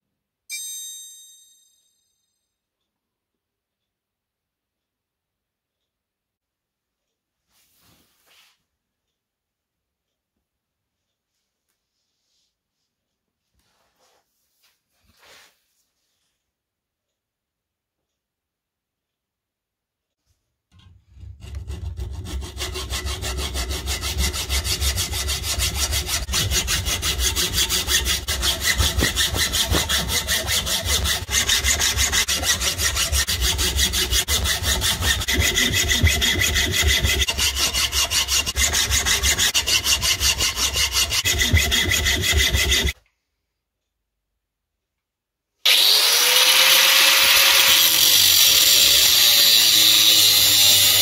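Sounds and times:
hacksaw cutting steel: 0:20.8 - 0:43.0, 0:45.7 - 0:51.0.

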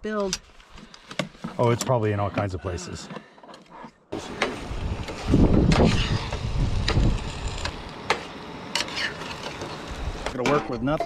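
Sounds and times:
wind buffeting microphone: 0:04.6 - 0:07.7.

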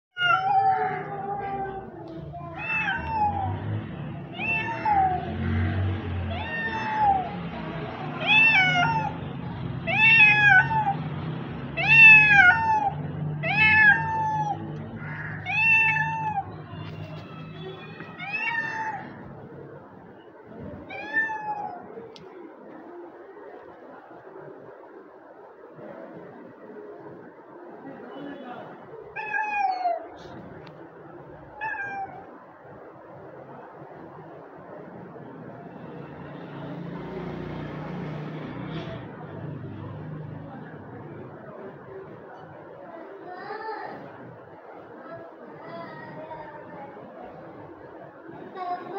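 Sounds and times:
cat meowing: 0:00.2 - 0:09.2, 0:09.9 - 0:11.1, 0:11.8 - 0:19.3, 0:20.8 - 0:22.0, 0:29.1 - 0:30.4, 0:31.6 - 0:32.4.

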